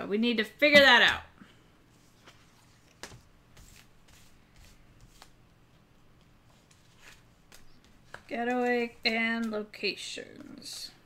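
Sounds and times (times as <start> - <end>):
playing cards tapping and sliding: 1.9 - 9.6.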